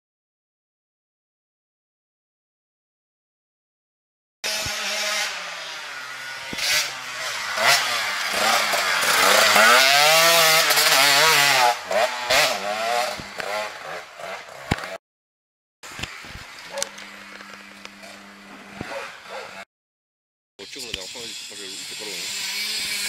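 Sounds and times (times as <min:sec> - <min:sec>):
dirt bike engine revving: 0:04.4 - 0:15.0, 0:15.9 - 0:19.7, 0:20.6 - 0:23.0.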